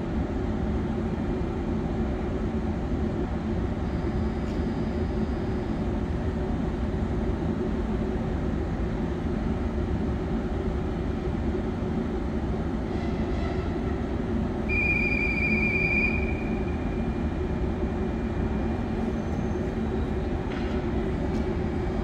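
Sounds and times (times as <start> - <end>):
electric train humming: 6.3 - 22.0.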